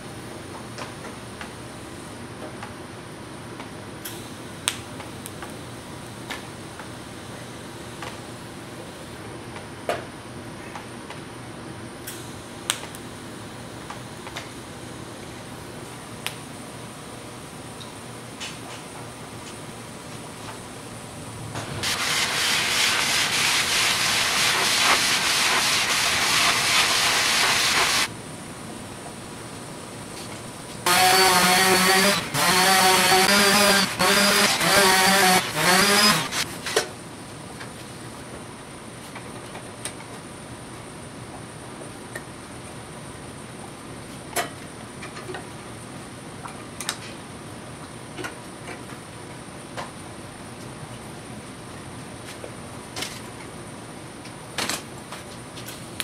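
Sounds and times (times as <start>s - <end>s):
steady background hiss: 11.4s - 32.0s
welding arc hissing and crackling: 20.4s - 28.1s, 30.1s - 36.7s.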